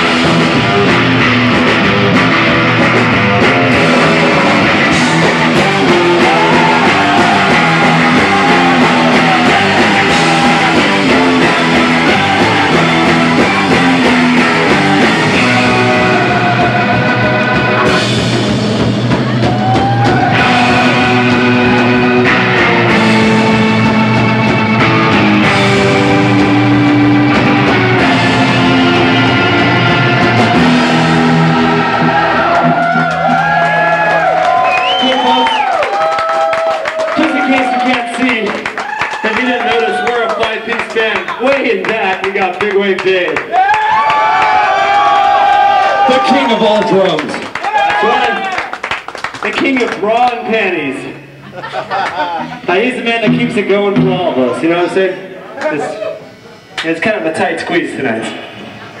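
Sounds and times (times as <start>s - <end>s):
electric guitar lead: 0.0s - 36.1s, 50.5s - 56.8s
bass guitar: 0.0s - 59.0s
drums: 0.0s - 59.0s.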